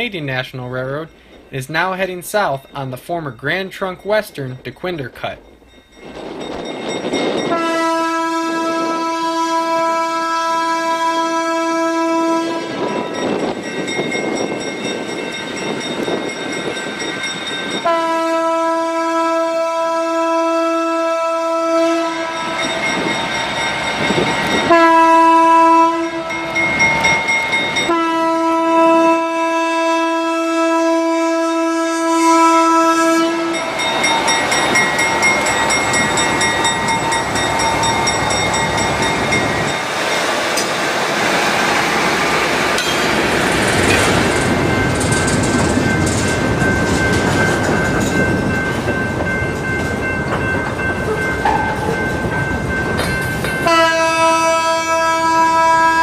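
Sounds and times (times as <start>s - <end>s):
locomotive horn blasts: 7.5s - 12.9s, 17.8s - 22.7s, 24.6s - 26.7s, 27.9s - 33.9s, 53.6s - 56.0s
train wheel clatter: 33.6s - 53.9s.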